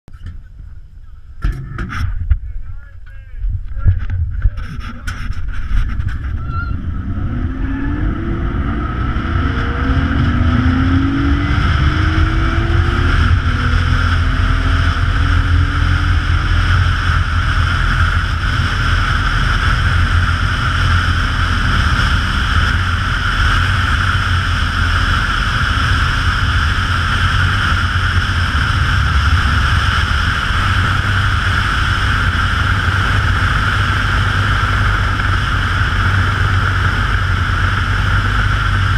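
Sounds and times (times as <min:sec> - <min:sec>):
wind buffeting microphone: 0:00.1 - 0:38.9.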